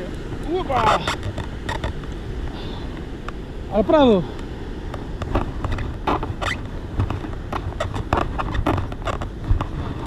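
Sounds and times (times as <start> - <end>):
low rumble of wind: 0.0 - 10.0.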